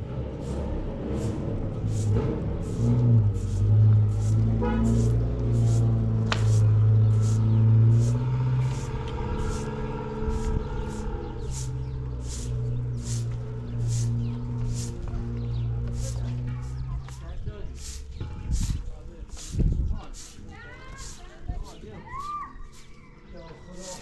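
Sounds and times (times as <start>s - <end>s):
sustained low music notes: 0.0s - 18.8s.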